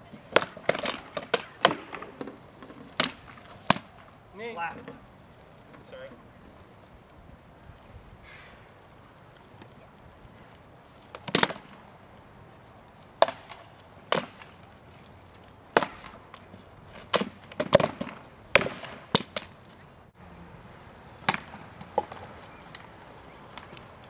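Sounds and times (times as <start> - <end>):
swords striking wooden shields: 0.3 - 2.3.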